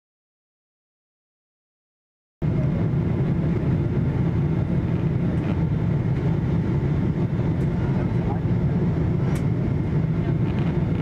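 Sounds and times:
airplane cabin engine rumble: 2.4s - 11.0s.

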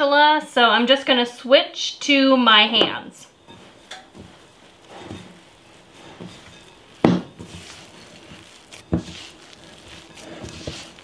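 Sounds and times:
hands kneading dough in bowl: 3.5s - 11.0s.

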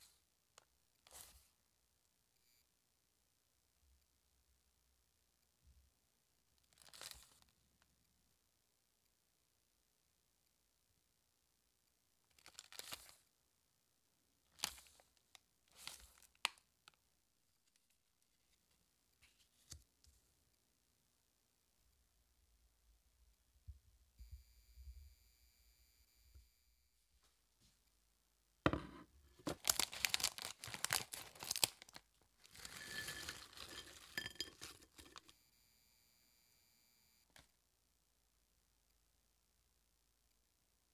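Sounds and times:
plastic packaging crinkling: 29.4s - 35.3s
rice crackers rattling onto plate: 29.4s - 35.3s.

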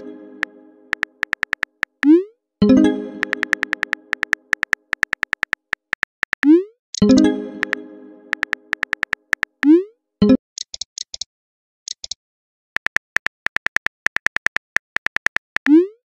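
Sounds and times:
phone keyboard typing clicks: 0.9s - 2.1s, 3.2s - 9.7s, 12.8s - 15.7s.

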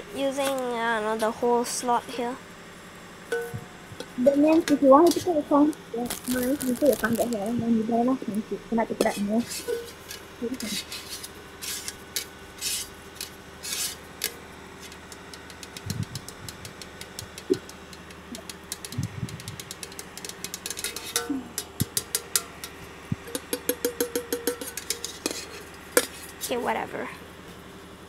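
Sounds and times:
small hard objects clattering: 6.0s - 7.5s.

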